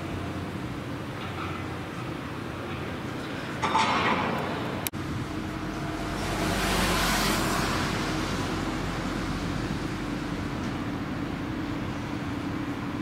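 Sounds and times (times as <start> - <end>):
traffic noise: 0.0 - 13.0
vehicle passing close by: 5.0 - 11.4.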